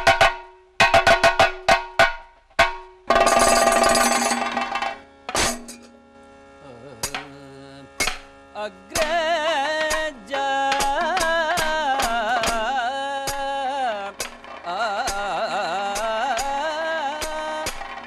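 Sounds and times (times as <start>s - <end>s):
sharp percussion strokes: 0.0s - 5.9s
singer holding ornamented notes: 6.3s - 17.8s.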